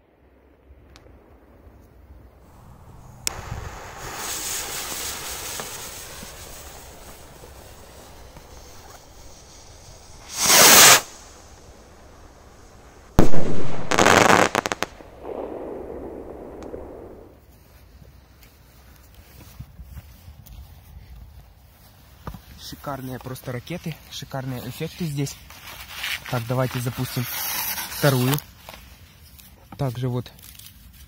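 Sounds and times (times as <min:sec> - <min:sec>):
firework crackling: 0:00.0 - 0:17.5
firework bang: 0:02.5 - 0:17.4
firework fizzing hiss: 0:02.5 - 0:17.4
rocket launch whoosh: 0:02.5 - 0:17.4.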